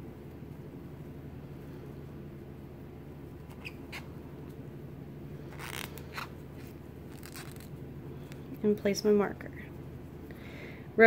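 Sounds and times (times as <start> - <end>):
steady low hum: 0.0 - 11.0
yarn rustling: 5.4 - 8.5.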